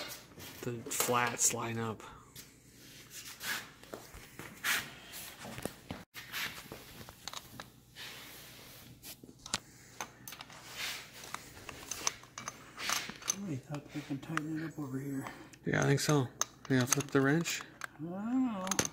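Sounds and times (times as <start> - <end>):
wrench clicking and scraping metal: 11.2 - 13.8, 15.7 - 17.9.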